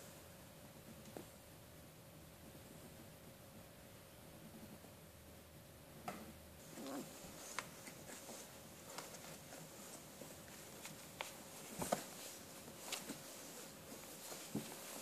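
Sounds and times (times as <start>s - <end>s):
puppies shuffling and crawling: 6.6s - 15.0s.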